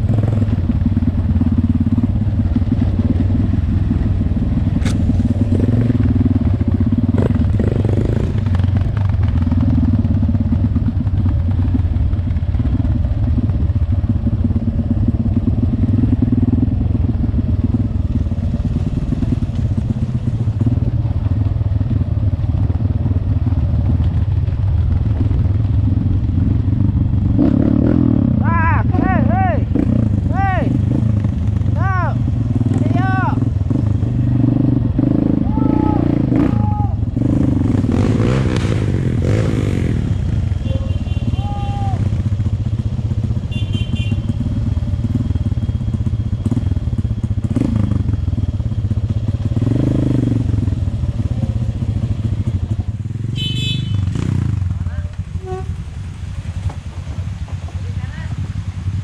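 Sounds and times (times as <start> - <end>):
motorcycle clattering over bumps: 0.0 - 16.4, 17.0 - 27.4, 56.6 - 58.7
motorcycle engine running: 0.0 - 59.0.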